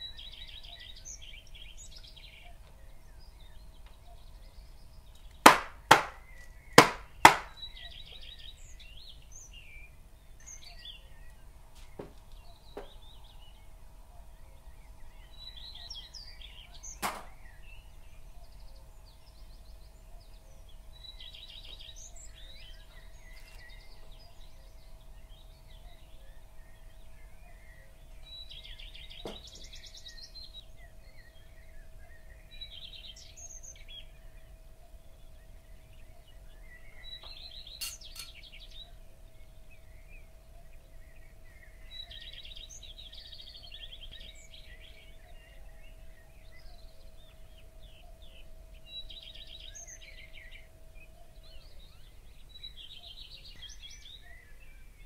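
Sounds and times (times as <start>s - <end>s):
faint steady hum: 0.0s - 55.0s
small birds chirping: 0.0s - 55.0s
cake pan knocking on counter: 5.5s - 6.2s, 6.8s - 7.5s.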